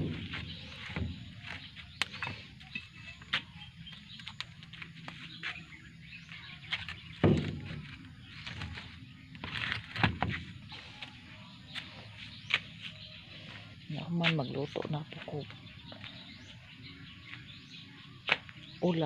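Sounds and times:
footsteps: 0:00.0 - 0:16.3
heavy thump: 0:07.2 - 0:08.0.

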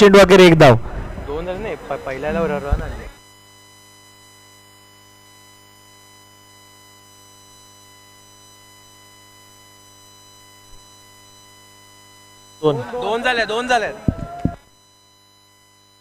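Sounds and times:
electrical mains hum: 0:00.0 - 0:16.0.

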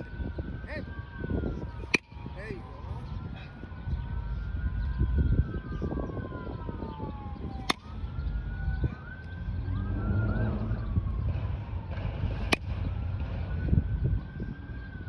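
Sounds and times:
siren wailing: 0:00.0 - 0:15.0
bat hitting balls: 0:01.8 - 0:02.4, 0:07.6 - 0:08.0, 0:12.3 - 0:13.1.

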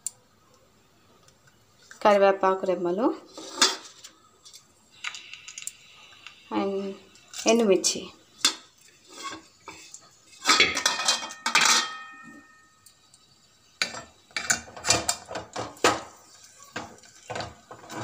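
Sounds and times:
metal clattering against pot: 0:08.4 - 0:12.6, 0:13.8 - 0:18.0.

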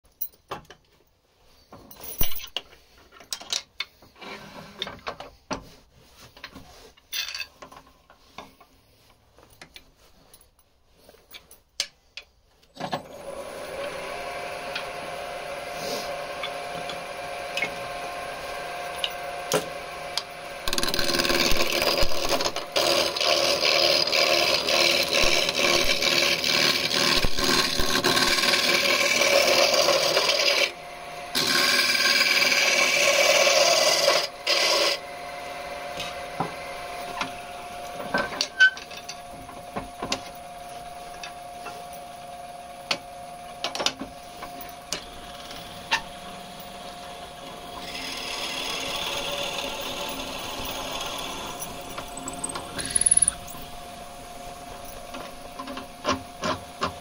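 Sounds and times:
tool scraping spinning wood: 0:13.0 - 0:35.0, 0:47.6 - 0:53.7
lathe running: 0:13.2 - 0:37.6, 0:45.0 - 0:53.8.

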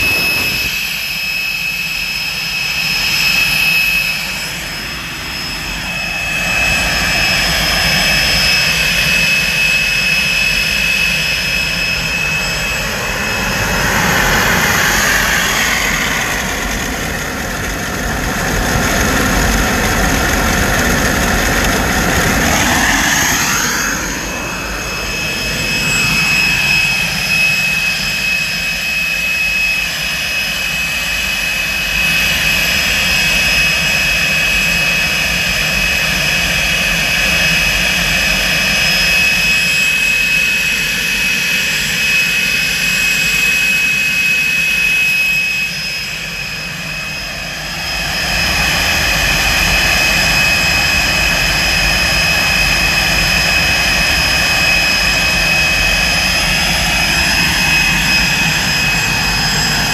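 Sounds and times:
exhaust rushing: 0:00.0 - 0:01.4
jet engine whine: 0:00.0 - 0:59.9.

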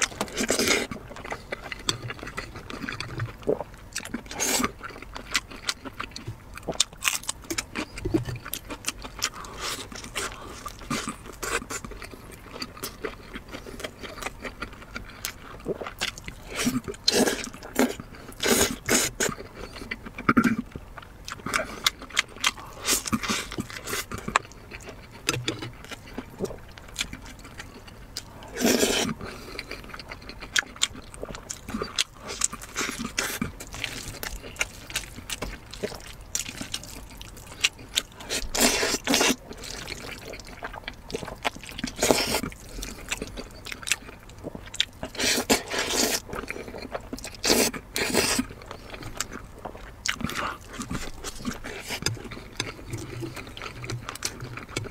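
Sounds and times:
chewing and biting food: 0:00.0 - 0:54.9
noodles slurped: 0:28.5 - 0:29.8, 0:31.6 - 0:43.1.

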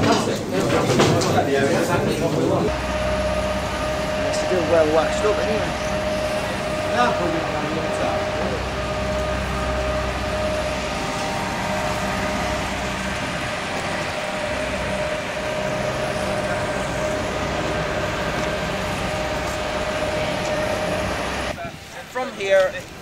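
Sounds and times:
machine humming and whining: 0:00.0 - 0:23.0.

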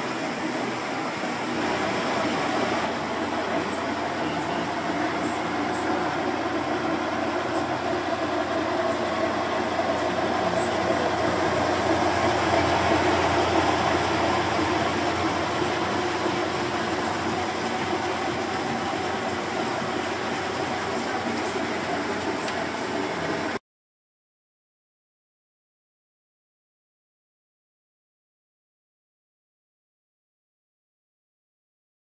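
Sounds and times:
washing machine running: 0:00.0 - 0:23.6.

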